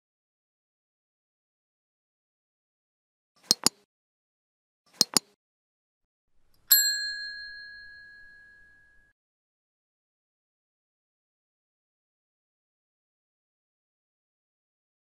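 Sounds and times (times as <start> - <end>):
notification bell ding: 6.7 - 9.1.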